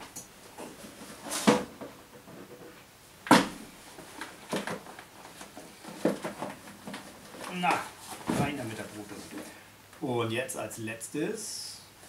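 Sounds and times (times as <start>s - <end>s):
rustles and knocks of handling: 0.0s - 10.0s.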